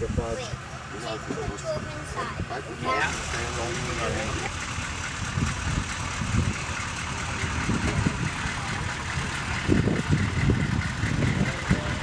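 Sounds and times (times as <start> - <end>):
pickup truck engine driving past: 2.9 - 12.0.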